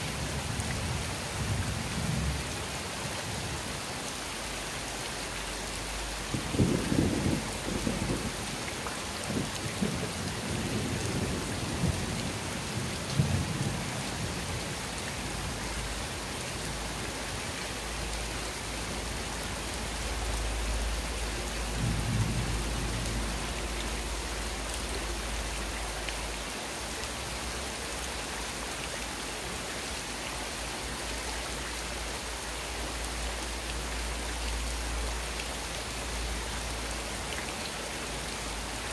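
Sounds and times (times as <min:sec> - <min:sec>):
rain on wet concrete: 0:00.0 - 0:38.9
thunder rumbles: 0:06.3 - 0:08.5, 0:21.6 - 0:25.2.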